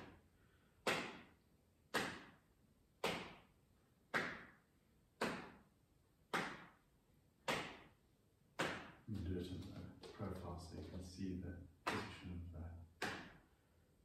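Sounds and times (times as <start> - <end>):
hands slapping body: 0.0 - 0.2, 0.8 - 6.8, 7.4 - 11.0, 11.8 - 12.3, 12.9 - 13.6.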